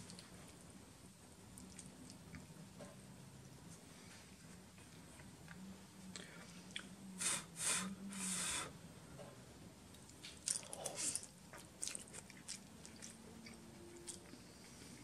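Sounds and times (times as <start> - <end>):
person chewing noodles: 1.6 - 2.4, 10.4 - 15.0.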